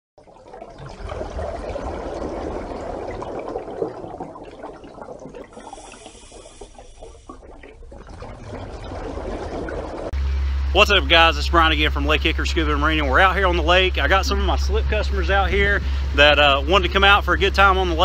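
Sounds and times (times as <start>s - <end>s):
rushing bubbling water: 0.2s - 10.2s.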